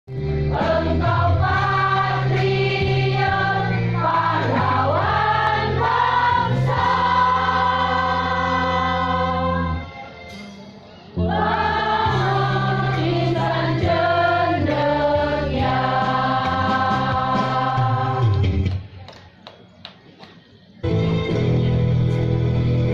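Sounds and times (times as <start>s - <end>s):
choir singing held chords: 0.2s - 10.1s, 11.1s - 18.6s.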